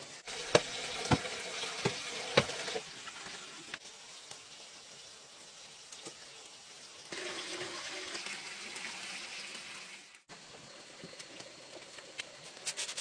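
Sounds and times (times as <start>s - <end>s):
wooden pole pounding earth: 0.5s - 2.7s.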